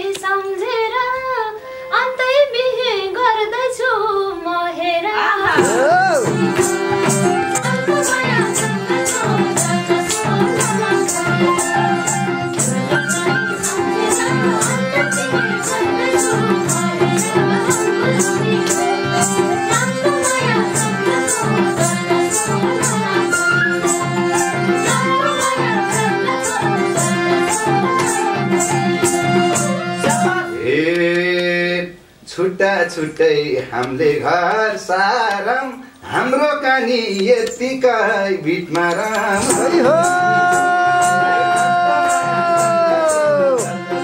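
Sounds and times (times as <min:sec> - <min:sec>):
percussion beat: 0:05.4 - 0:30.5, 0:38.5 - 0:44.0
harmonium drone: 0:05.6 - 0:30.6, 0:39.4 - 0:44.0
flute melody: 0:05.6 - 0:30.7, 0:39.4 - 0:44.0.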